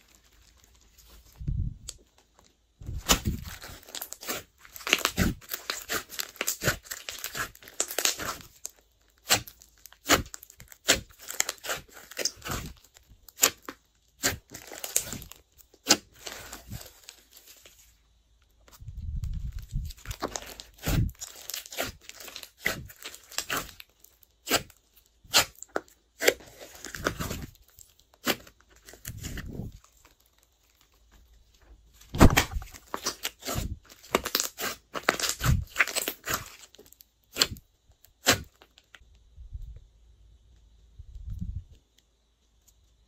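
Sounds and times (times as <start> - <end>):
slime squelching: 3.0 - 17.8, 19.6 - 30.8, 32.0 - 37.6, 38.2 - 38.7.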